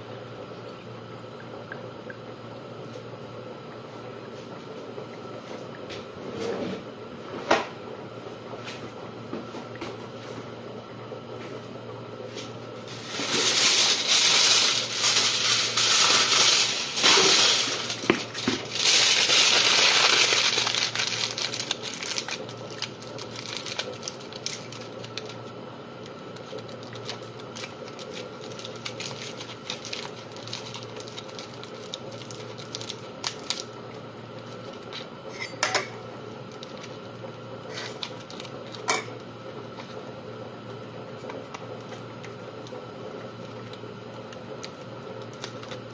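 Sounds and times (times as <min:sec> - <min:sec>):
aluminium foil crinkling: 0:12.9 - 0:33.8, 0:36.2 - 0:40.1, 0:41.2 - 0:45.9.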